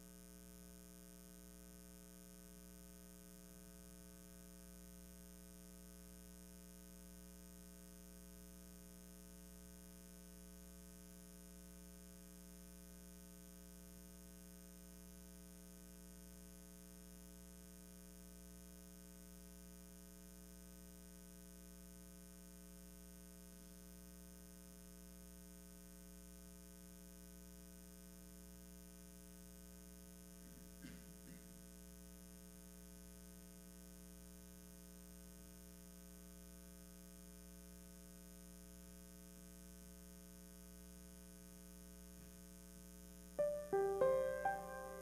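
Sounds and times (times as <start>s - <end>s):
piano notes: 43.4s - 45.0s.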